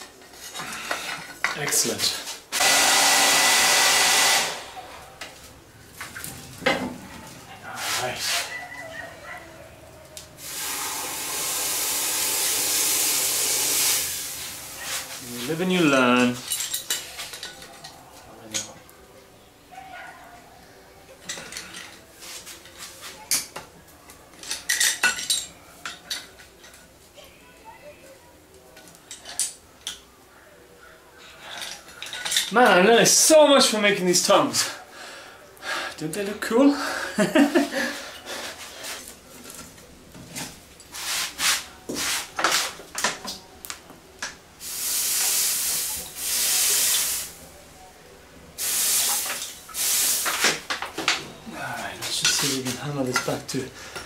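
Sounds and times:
water hissing on hot metal: 0:10.4 - 0:15.7, 0:44.6 - 0:47.4, 0:48.6 - 0:50.6
metal clinks and scrapes: 0:31.3 - 0:32.6.

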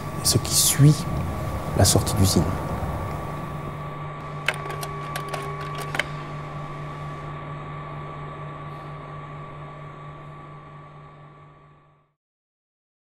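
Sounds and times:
slide projector hum: 0:00.0 - 0:12.0
slide mechanism clicks: 0:04.4 - 0:06.3.

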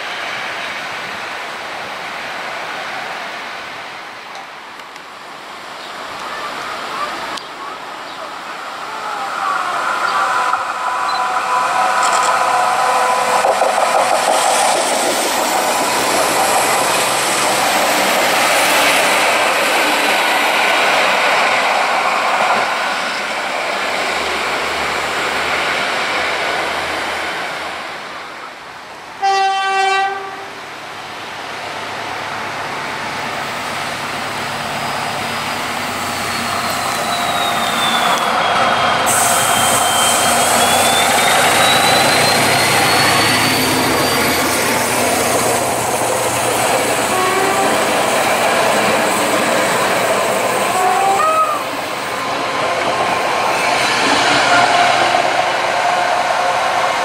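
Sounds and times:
diesel locomotive engine passing: 0:05.3 - 0:57.0
diesel railcar running: 0:05.4 - 0:57.0
locomotive horn: 0:29.2 - 0:30.6, 0:47.0 - 0:48.0, 0:50.7 - 0:51.7, 0:54.2 - 0:55.4
thin wheel squeal: 0:36.1 - 0:38.3, 0:39.1 - 0:44.7.

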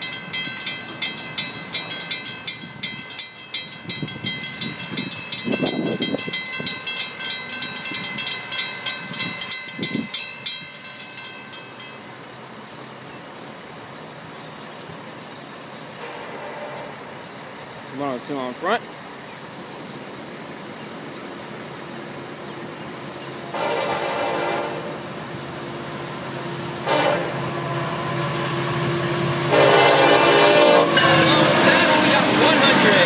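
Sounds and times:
railroad crossing bell ringing: 0:00.0 - 0:13.2, 0:26.4 - 0:33.0.

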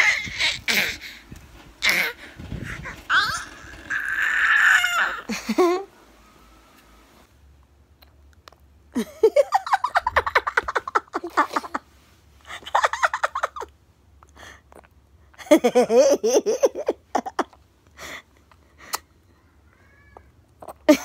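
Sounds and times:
baby babbling and squealing: 0:00.0 - 0:01.1, 0:01.8 - 0:05.3.

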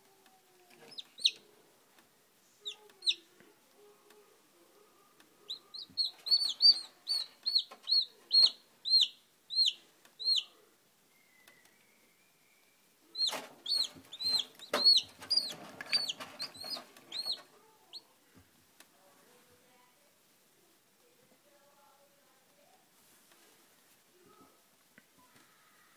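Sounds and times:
chicks peeping: 0:00.7 - 0:01.5, 0:02.6 - 0:03.3, 0:05.4 - 0:10.6, 0:13.1 - 0:18.1.

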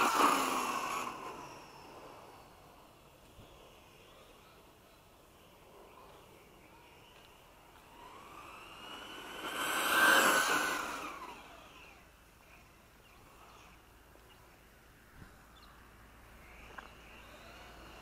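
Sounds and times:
electric motor whining: 0:00.0 - 0:01.9, 0:07.8 - 0:12.0, 0:16.6 - 0:18.0.

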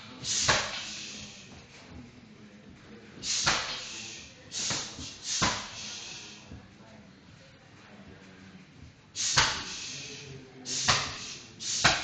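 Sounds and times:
kicks and punches on heavy bag: 0:04.6 - 0:05.7.

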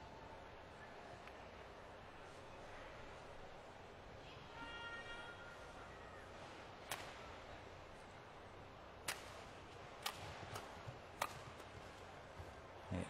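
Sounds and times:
faint arena background: 0:00.0 - 0:13.0
rackets striking shuttlecock: 0:06.8 - 0:07.2, 0:09.0 - 0:11.7.

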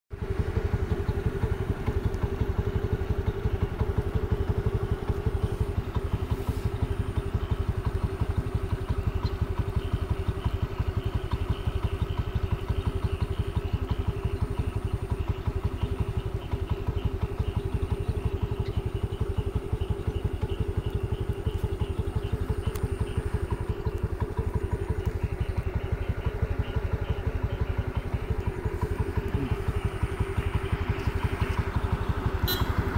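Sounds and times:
vehicle engine running: 0:00.1 - 0:32.9.

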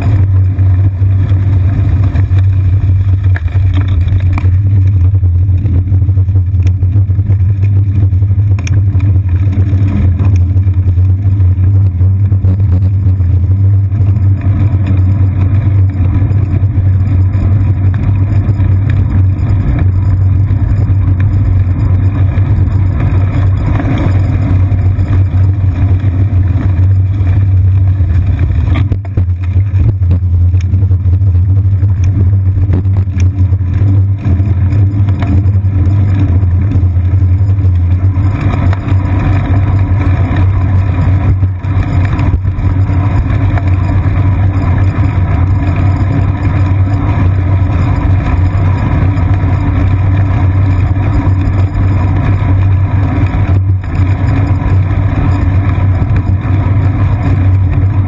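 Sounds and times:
bicycle riding vibration and wind: 0:00.0 - 0:58.0.

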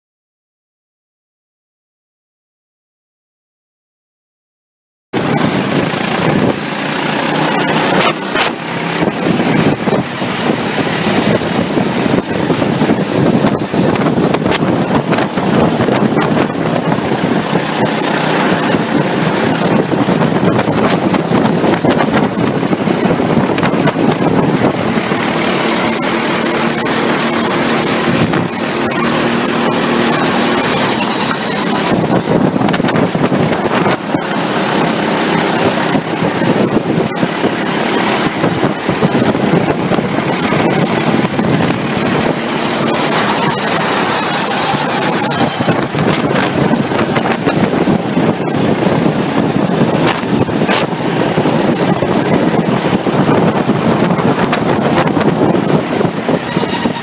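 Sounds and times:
air rushing: 0:05.2 - 0:57.0
go-kart engines at speed: 0:05.2 - 0:57.0.

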